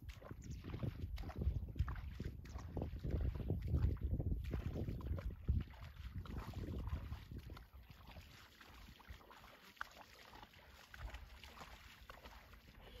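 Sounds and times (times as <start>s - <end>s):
wind rumble on microphone: 0.0s - 9.3s.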